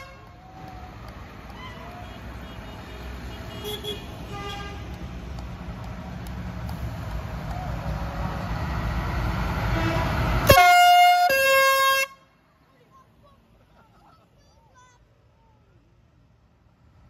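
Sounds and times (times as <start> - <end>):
loud horn blast: 2.4 - 5.0, 9.6 - 12.3.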